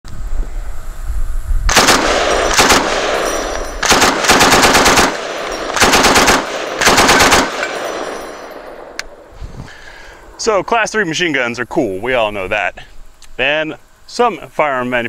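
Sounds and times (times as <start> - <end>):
machine gun automatic fire: 1.7 - 8.2.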